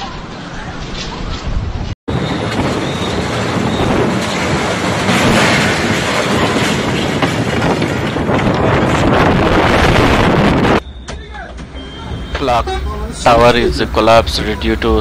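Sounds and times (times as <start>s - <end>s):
wind roaring on microphone: 0.0s - 10.8s
panels rattling: 2.3s - 10.2s.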